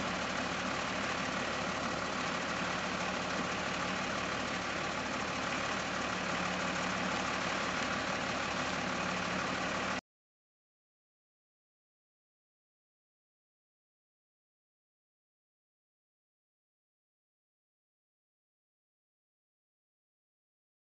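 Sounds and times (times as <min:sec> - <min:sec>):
distant diesel truck idling: 0:00.0 - 0:10.0.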